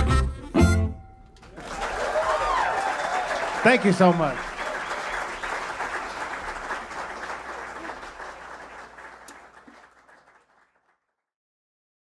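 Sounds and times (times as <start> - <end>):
audience applauding: 1.4 - 11.0.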